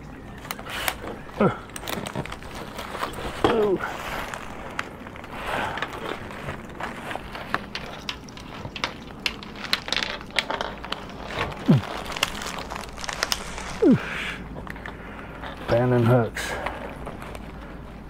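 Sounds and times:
rustling and crinkling of gear: 0.0 - 18.0
small clicks and knocks: 6.9 - 11.6.

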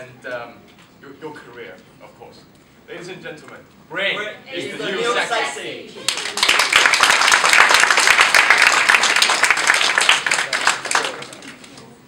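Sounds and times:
audience applauding: 6.0 - 11.8.

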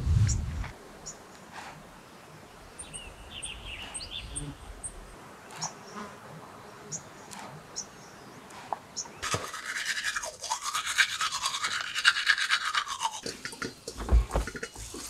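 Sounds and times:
small birds chirping: 0.2 - 10.0.

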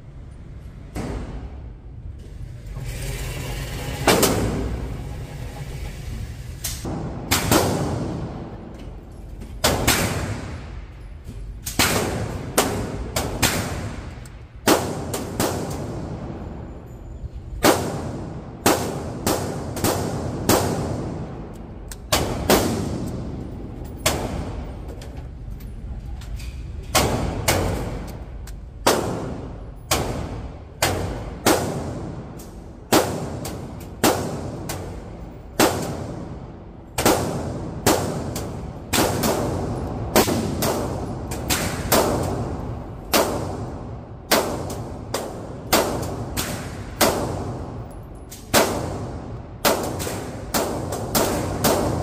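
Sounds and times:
pistol shots with ringing echo: 6.9 - 8.6, 17.6 - 21.4, 27.0 - 52.0.

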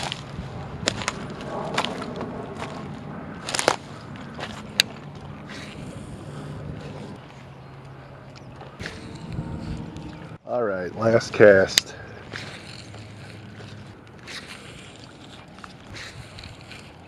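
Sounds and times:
footsteps crunching on gravel: 0.0 - 10.0
sharp clicks and scrapes: 11.0 - 17.0.

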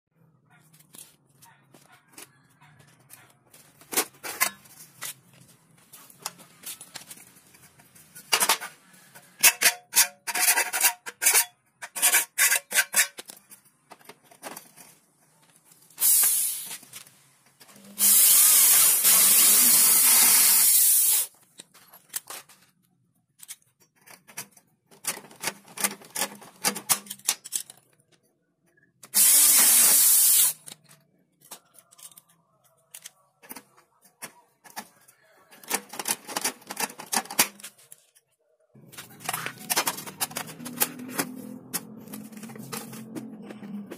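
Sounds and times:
electric drill boring into aluminum: 18.0 - 21.3.

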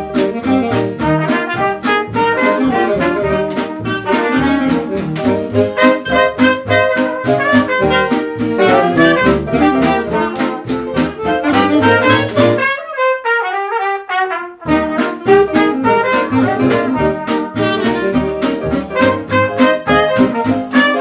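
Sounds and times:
upbeat music with steady beat: 0.0 - 12.6.

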